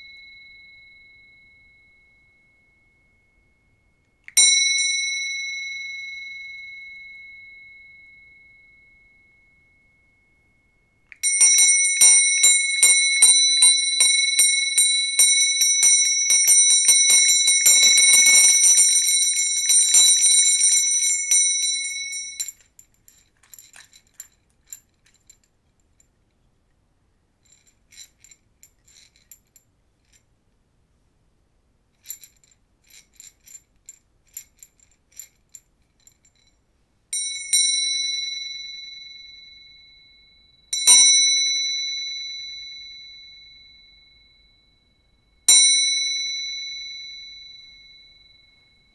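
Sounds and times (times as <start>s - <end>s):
hand bell ringing: 11.2s - 22.8s, 37.2s - 48.9s.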